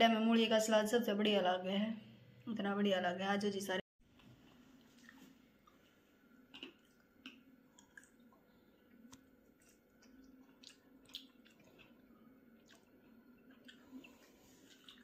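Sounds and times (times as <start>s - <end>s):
chewing soft bread: 4.0s - 15.0s.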